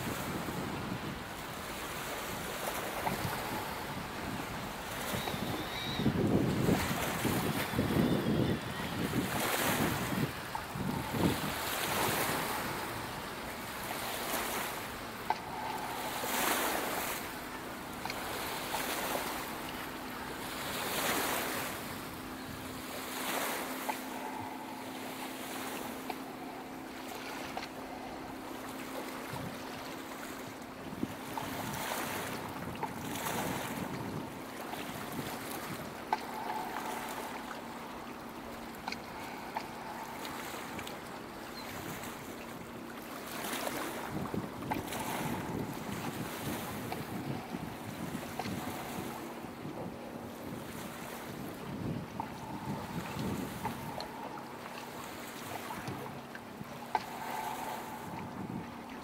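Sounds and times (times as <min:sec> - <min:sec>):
wind on microphone: 0:00.0 - 0:14.6, 0:30.8 - 0:37.9, 0:43.7 - 0:54.8, 0:55.5 - 0:59.0
faint steady hum: 0:00.0 - 0:59.0
sea waves washing onto shore: 0:00.0 - 0:59.0.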